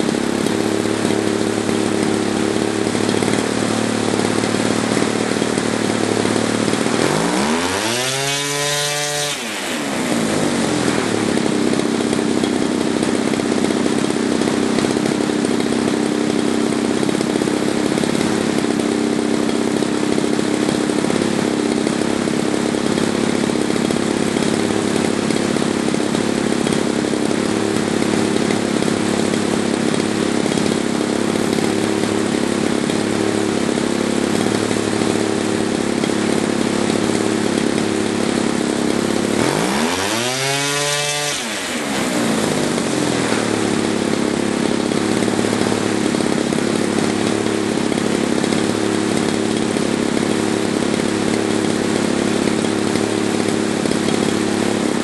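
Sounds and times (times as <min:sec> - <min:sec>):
model airplane engine running: 0:00.0 - 0:55.0.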